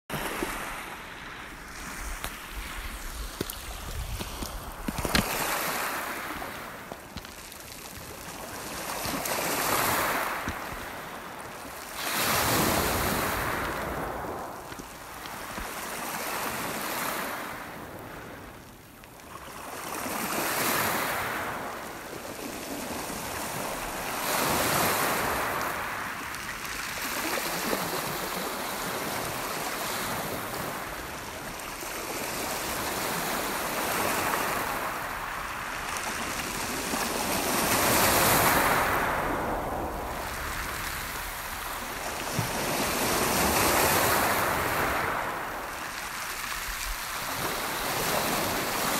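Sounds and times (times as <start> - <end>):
waves breaking on a gravel beach: 0.1 - 48.9.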